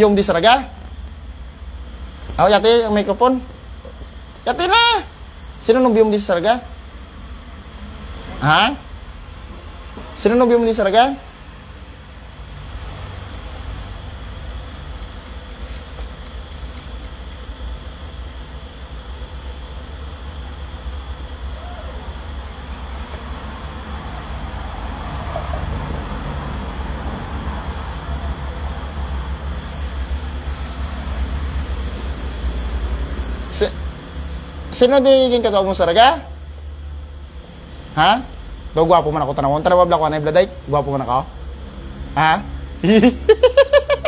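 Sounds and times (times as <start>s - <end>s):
cricket chirping: 0.0s - 44.0s.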